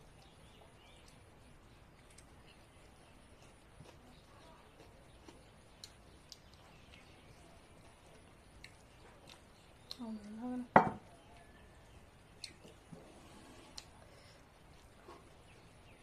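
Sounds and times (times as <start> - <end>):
steel bowl knocking on table: 10.8 - 11.0.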